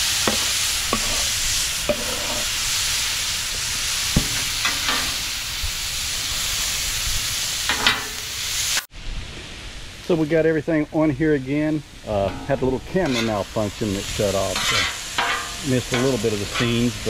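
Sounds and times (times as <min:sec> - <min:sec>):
food sizzling on a griddle: 0:00.0 - 0:10.6, 0:11.9 - 0:17.0
metal spatula clacking and scraping: 0:00.3 - 0:02.5, 0:12.2 - 0:13.6, 0:14.4 - 0:16.9.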